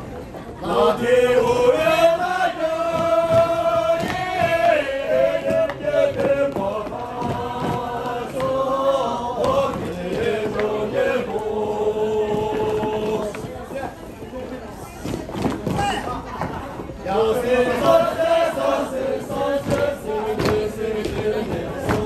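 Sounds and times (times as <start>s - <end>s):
voices chanting long notes: 0.6s - 13.3s, 17.1s - 22.0s.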